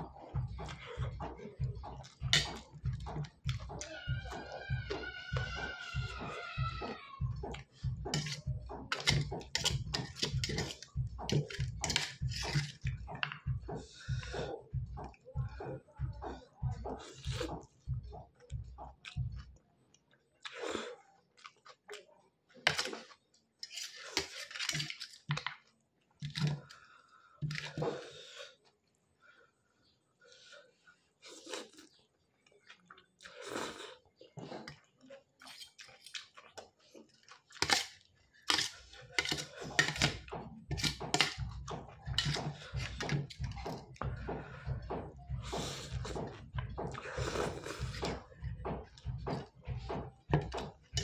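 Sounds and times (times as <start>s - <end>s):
slurping and wet chewing: 31.2s - 51.0s.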